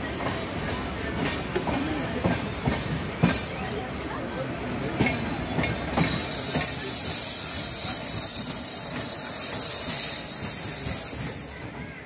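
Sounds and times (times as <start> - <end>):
train running noise: 0.0 - 12.0
train wheels squealing on rails: 2.1 - 3.8, 5.0 - 12.0.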